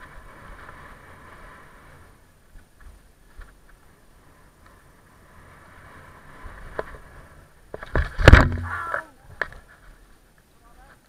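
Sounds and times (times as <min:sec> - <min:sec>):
bike tyres rolling over dirt: 0:00.0 - 0:11.0
bike crash thuds and clatter: 0:07.7 - 0:08.9.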